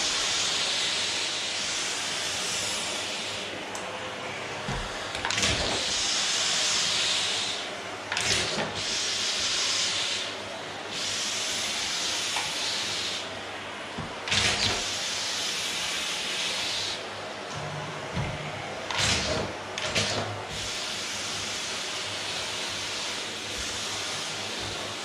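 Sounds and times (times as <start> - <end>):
vacuum cleaner on wooden floor: 0.0 - 25.0.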